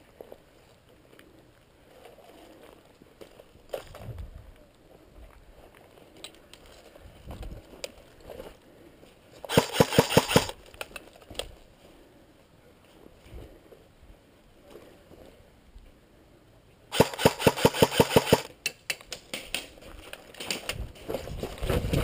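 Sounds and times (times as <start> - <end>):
airsoft gun shots: 9.5 - 10.6, 16.9 - 18.5.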